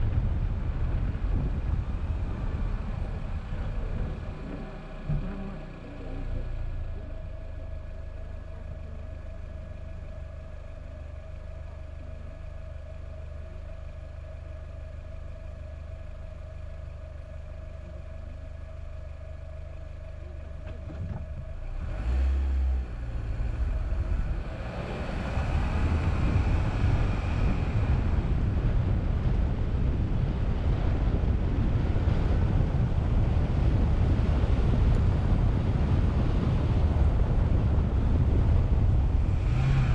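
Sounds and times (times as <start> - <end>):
wind buffeting microphone: 0.0 - 5.8, 23.1 - 39.9
car engine rumbling: 0.0 - 39.9
tyres rumbling on road: 0.0 - 39.9
low thump: 4.5 - 5.6.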